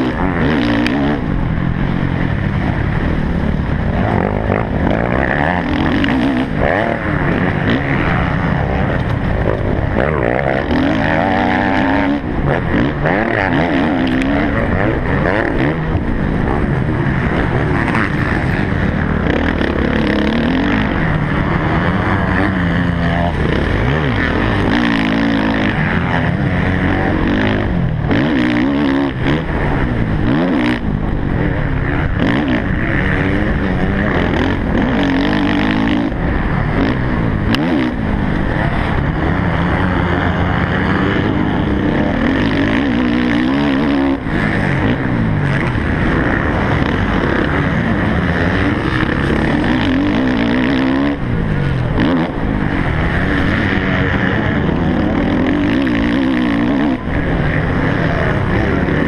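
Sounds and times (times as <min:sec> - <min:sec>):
motocross bike engine revving: 0:00.0 - 0:59.0.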